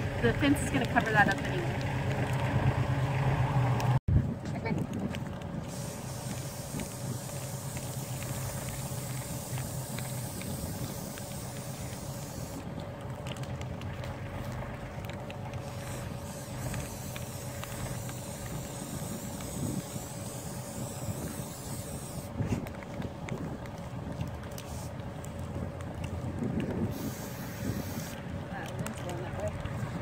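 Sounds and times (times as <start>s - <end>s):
aerosol spray can hissing: 5.7s - 12.6s, 15.8s - 22.3s, 26.9s - 28.2s.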